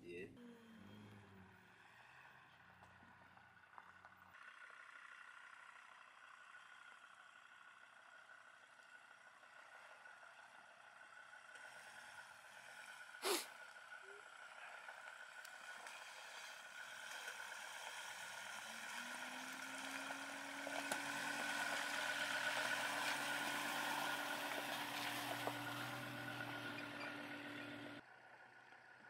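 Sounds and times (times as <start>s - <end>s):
vehicle engine approaching: 0.1s - 29.0s.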